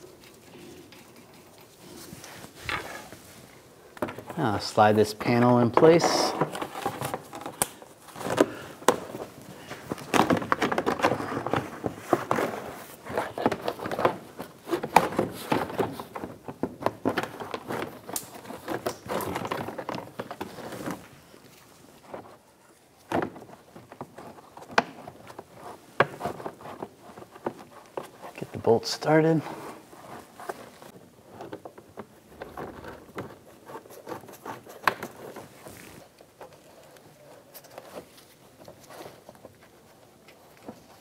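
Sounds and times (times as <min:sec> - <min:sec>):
stiff plastic rubbing and clicking: 0:05.2 - 0:21.1, 0:23.0 - 0:41.0.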